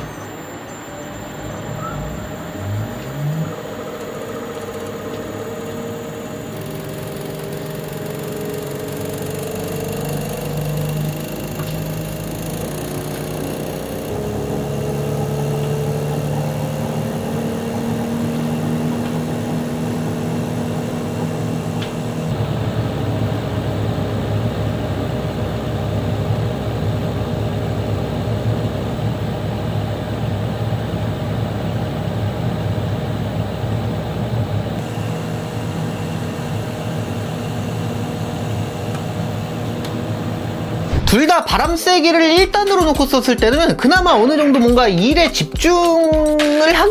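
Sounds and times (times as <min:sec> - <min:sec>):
rattling judder: 0:00.0 - 0:22.4, 0:40.7 - 0:45.9
air conditioner humming: 0:00.0 - 0:46.9.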